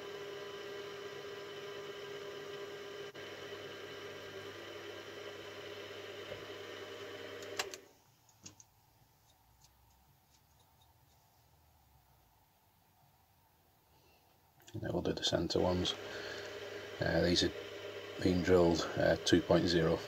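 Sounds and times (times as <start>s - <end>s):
milling machine motor humming: 0.0s - 7.8s, 15.3s - 20.0s.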